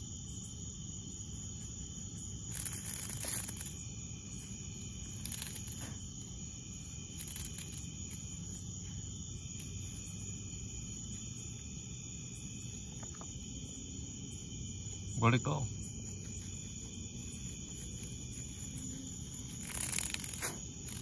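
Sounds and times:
insects droning at night: 0.0s - 21.0s
rustling in grass: 2.1s - 11.3s, 15.9s - 21.0s.

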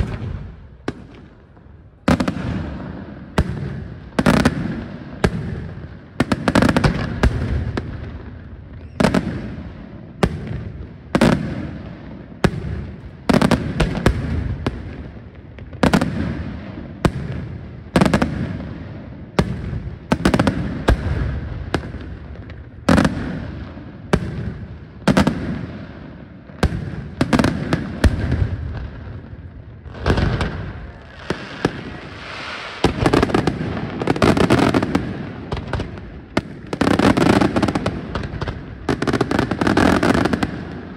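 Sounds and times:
fireworks bursting with echo: 0.0s - 40.9s.

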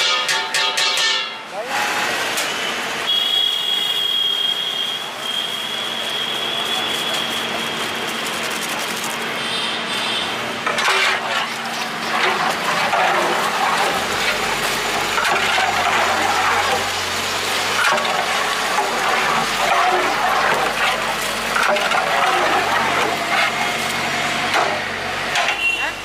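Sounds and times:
metal ladle scraping a metal pot: 10.2s - 24.3s.

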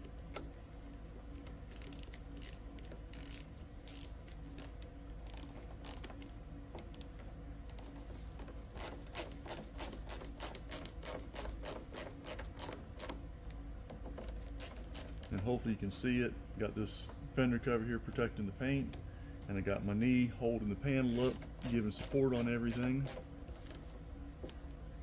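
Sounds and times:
hand ratchet clicking: 1.7s - 6.1s, 7.7s - 13.2s, 21.1s - 23.2s.

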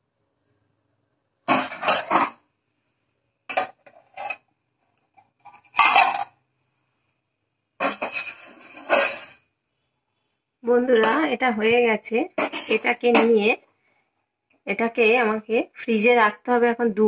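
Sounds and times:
metal pot lid scraping and clanking: 1.5s - 2.4s, 3.5s - 4.5s, 5.2s - 6.4s, 7.8s - 9.4s, 12.4s - 13.5s.

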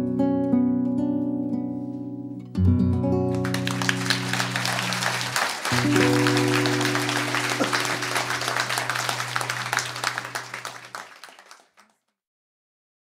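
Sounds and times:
audience applause: 3.4s - 12.0s
held music chord ringing: 5.8s - 9.6s.

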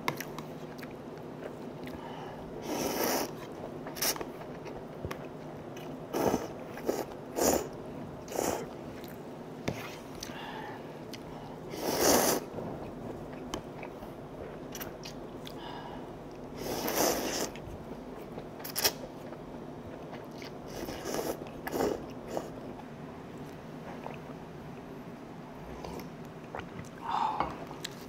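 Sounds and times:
slurping noodles: 2.6s - 3.4s, 11.7s - 12.5s.

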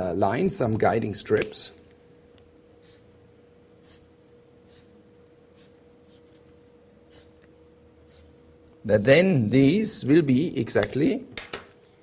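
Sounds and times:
faint steady hum: 0.0s - 12.0s
pen scratching on paper: 2.8s - 3.1s, 3.8s - 6.5s, 7.1s - 7.4s, 8.0s - 8.6s.

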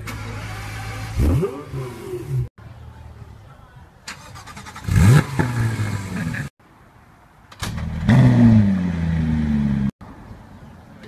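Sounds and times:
car starter cranking: 0.0s - 1.4s, 4.1s - 5.2s
car engine flaring on startup: 0.0s - 2.4s.

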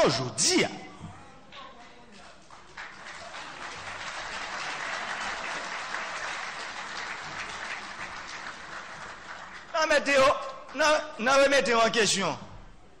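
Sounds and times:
audience applauding: 2.4s - 10.8s.

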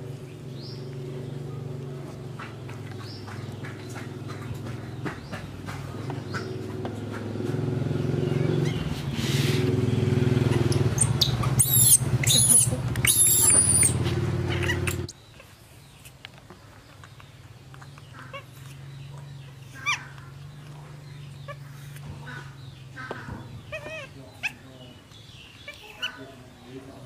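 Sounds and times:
baby monkey high calls: 10.4s - 15.1s, 19.7s - 20.3s, 21.4s - 24.6s, 25.6s - 26.4s.

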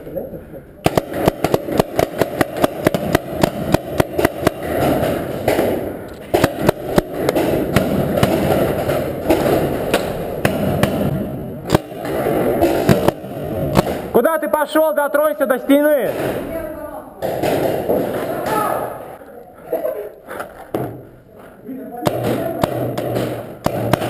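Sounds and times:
paintball markers firing: 0.8s - 14.2s, 22.0s - 24.0s.

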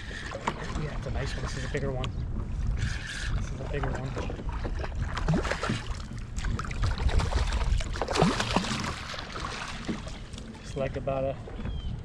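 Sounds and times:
wind rumble on microphone: 0.0s - 12.0s
fish splashing at water surface: 6.8s - 10.2s.

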